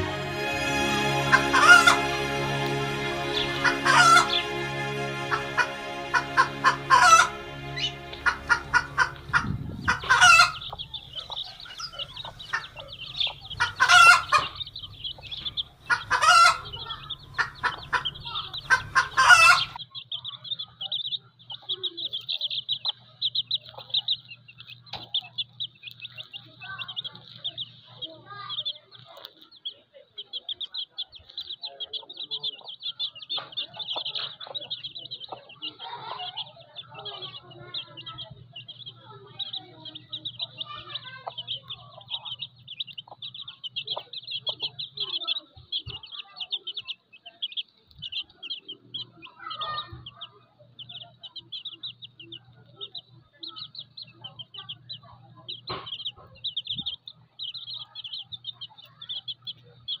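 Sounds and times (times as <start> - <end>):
steady low hum: 0.0 - 19.8
chicks peeping: 0.0 - 60.0
hen clucking softly: 1.3 - 2.0, 3.6 - 4.4, 5.5 - 60.0.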